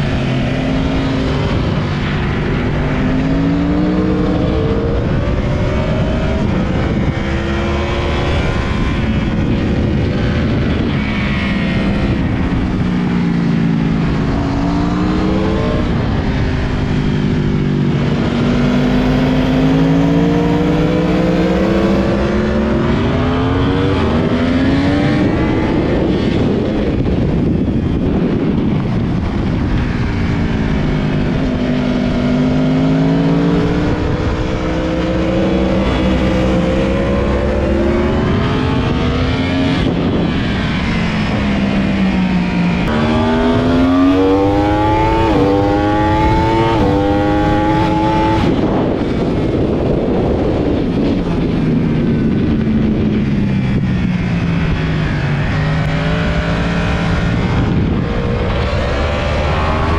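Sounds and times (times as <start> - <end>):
motorcycle engine revving: 0.0 - 59.9
wind noise: 0.0 - 59.9.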